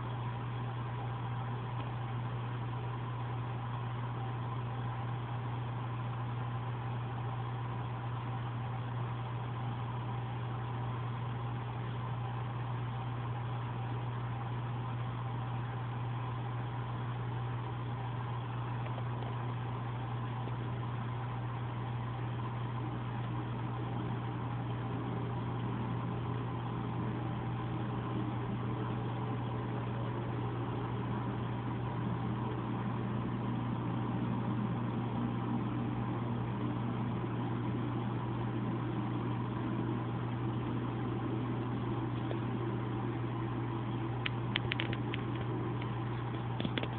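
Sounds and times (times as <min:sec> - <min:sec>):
steady machine hum: 0:00.0 - 0:46.9
sharp clicks: 0:44.2 - 0:46.9.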